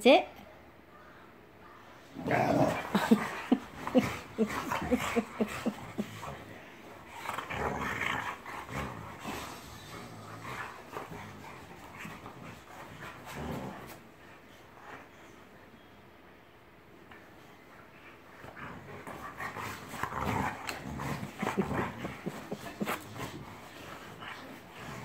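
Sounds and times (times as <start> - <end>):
dogs growling: 2.0 - 14.8, 18.3 - 25.0.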